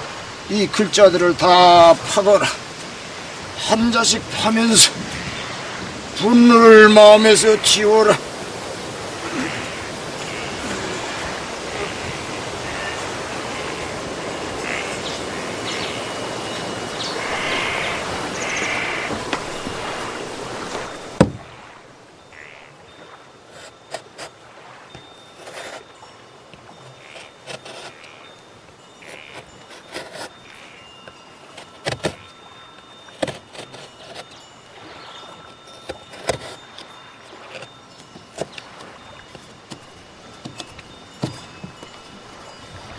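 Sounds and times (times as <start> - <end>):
sharp knock: 21.2 - 21.4
knife carving wood: 25.4 - 25.8, 27.1 - 28.1, 29.0 - 30.4, 31.5 - 32.2, 33.1 - 34.4, 35.6 - 37.7.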